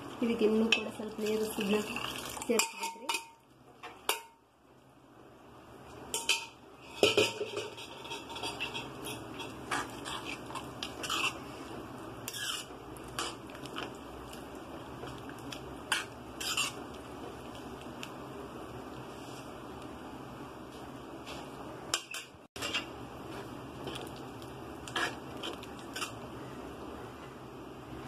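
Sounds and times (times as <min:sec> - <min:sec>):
spoon clinking and scraping a pan: 0:02.4 - 0:04.4, 0:06.1 - 0:11.4, 0:12.3 - 0:14.0, 0:15.9 - 0:16.9, 0:21.9 - 0:22.9.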